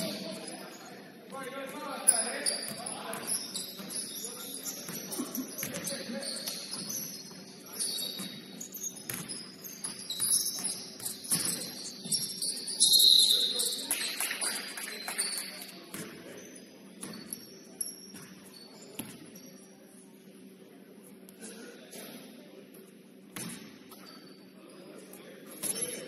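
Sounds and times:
sneakers squeaking on court floor: 1.7 - 14.1, 14.9 - 19.8
basketball bouncing: 9.0 - 12.2.

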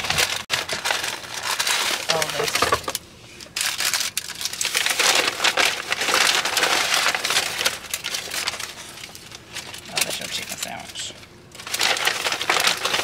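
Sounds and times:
crinkling and rustling: 0.0 - 13.0.

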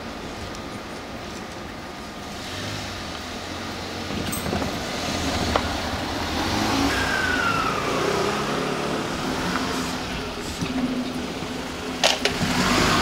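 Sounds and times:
falling whine: 5.3 - 13.0.

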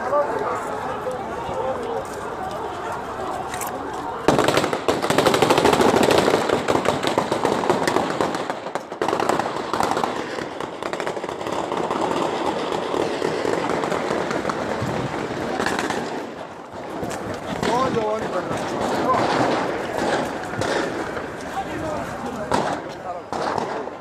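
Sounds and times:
crowd noise: 0.0 - 24.0
heavy gunfire bursts: 4.3 - 16.2.

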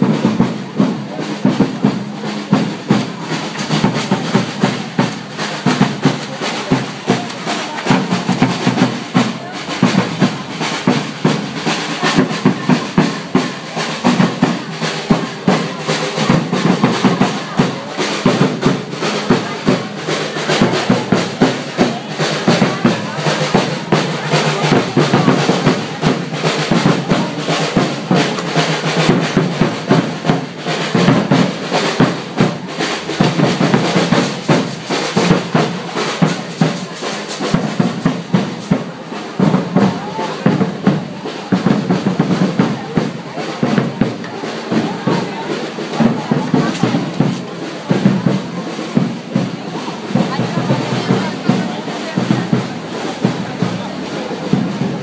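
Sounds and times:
crowd voices: 0.0 - 55.0
drums playing steady rhythm: 0.0 - 55.0.

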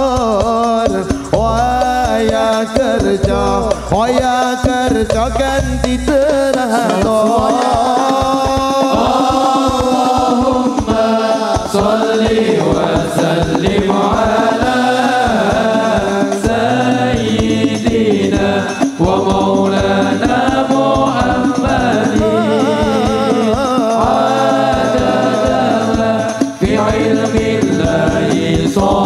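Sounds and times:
man chanting into a microphone: 0.0 - 12.3, 21.0 - 27.3
steady drum beat: 0.0 - 29.0.

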